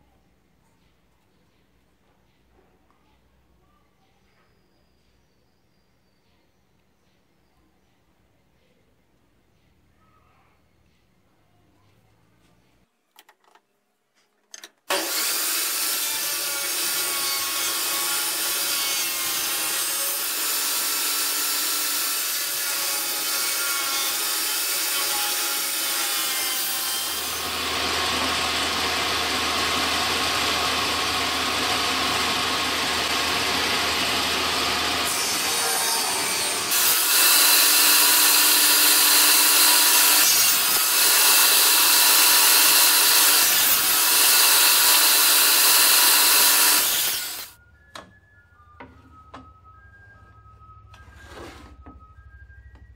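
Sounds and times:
table saw cutting wood: 14.9s - 47.6s.

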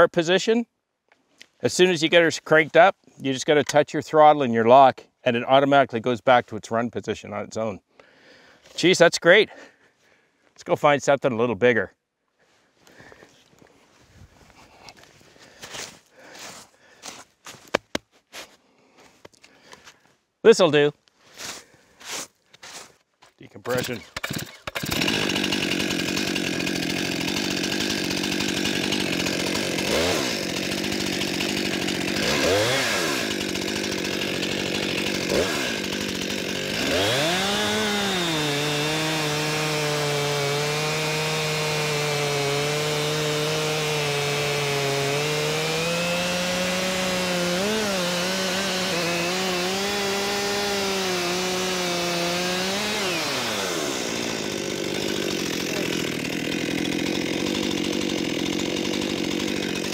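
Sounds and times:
chainsaw revving and cutting log: 23.7s - 59.9s.

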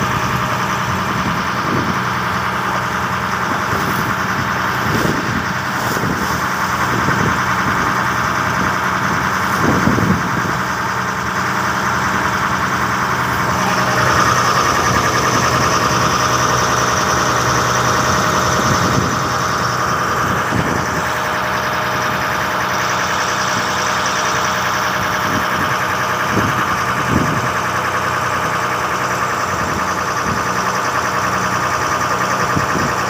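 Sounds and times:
boat engine droning: 0.0s - 33.0s
water churning along hull: 0.0s - 33.0s.

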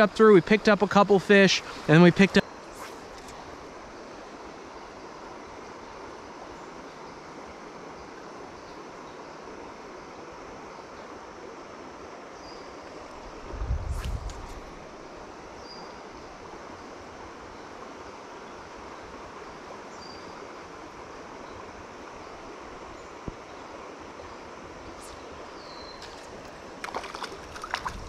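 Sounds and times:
stream water flowing: 0.0s - 28.0s
fish splashing at the surface: 26.0s - 28.0s.

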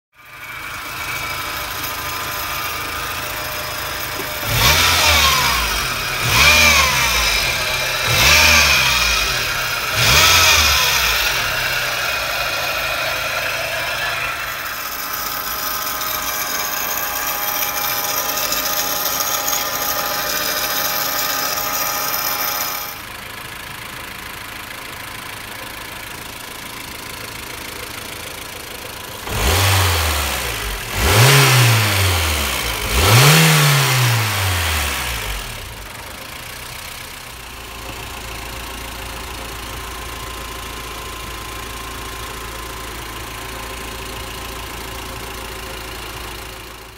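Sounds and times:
high-pitched engine whine: 0.2s - 23.6s
engine idling: 0.2s - 46.9s
car engine revving: 0.4s - 23.0s, 29.1s - 36.0s.

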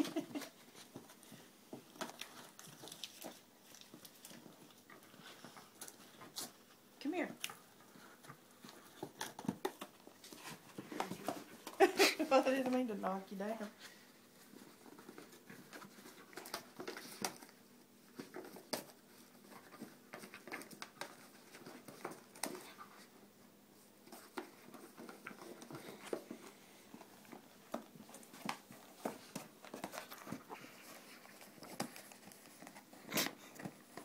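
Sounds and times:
dog gnawing at wrapped box: 0.0s - 6.8s, 7.5s - 12.8s, 14.4s - 23.1s, 24.0s - 34.0s.

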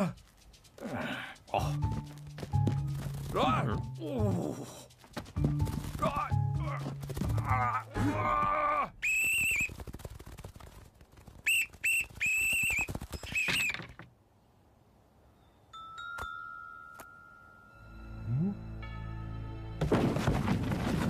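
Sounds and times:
light tapping patter: 0.0s - 7.4s
whistle blasts: 9.0s - 9.7s, 11.4s - 13.8s.

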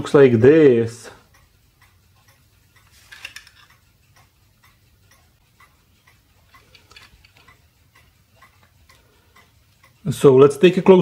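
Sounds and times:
faint ticking: 0.0s - 11.0s
plastic housing rustling and clacking: 2.9s - 3.7s, 6.7s - 7.5s.

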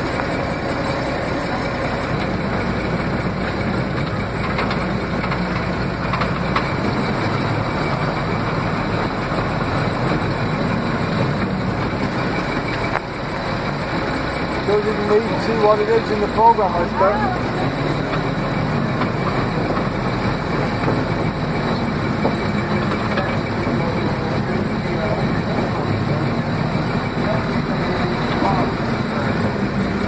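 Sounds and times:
tank engine running: 0.0s - 30.0s.

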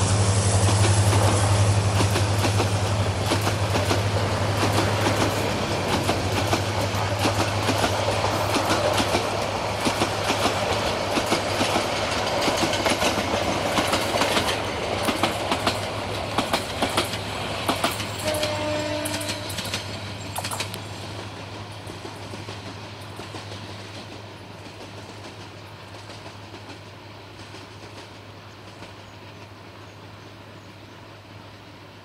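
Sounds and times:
train wheels clicking over rail joints: 0.0s - 29.9s.

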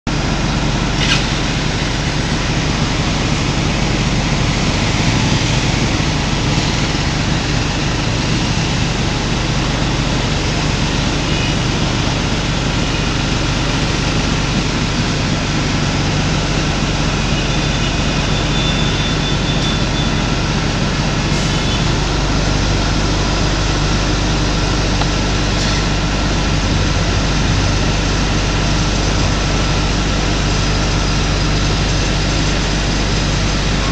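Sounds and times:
motor rumbling and hissing: 0.1s - 33.9s.

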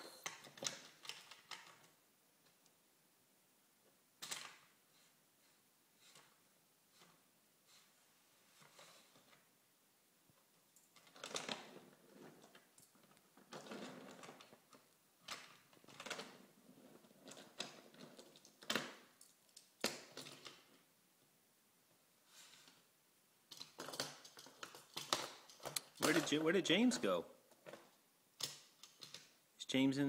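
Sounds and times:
wooden toy trains rattling on track: 23.5s - 29.3s.

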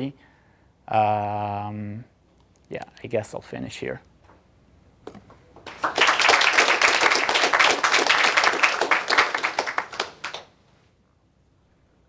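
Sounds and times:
audience applauding: 5.6s - 10.5s.

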